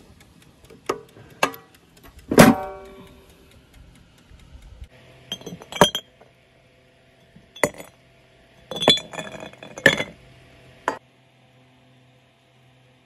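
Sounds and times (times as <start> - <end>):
hard objects clinking: 5.3 - 6.2, 7.5 - 7.9, 8.7 - 10.2.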